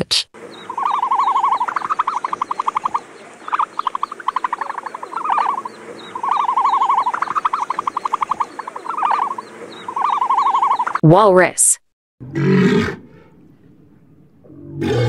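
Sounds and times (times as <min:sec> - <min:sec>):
animal rattling trills: 0:00.5 - 0:11.0.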